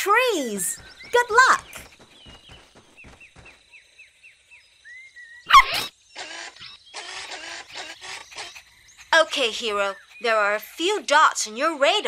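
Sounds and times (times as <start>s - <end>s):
quick falling chirps: 5.4s - 10.7s.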